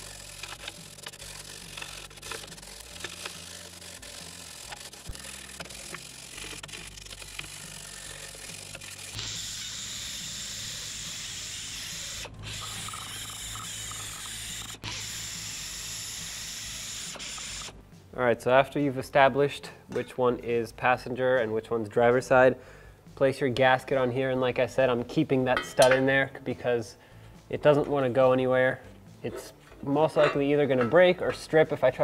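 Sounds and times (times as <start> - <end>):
grinder hissing against metal: 0.0 - 17.7.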